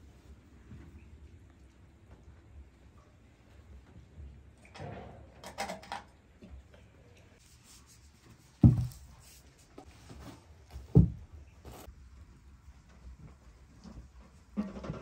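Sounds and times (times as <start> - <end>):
dull thumps: 8.6 - 9.1, 10.7 - 11.9.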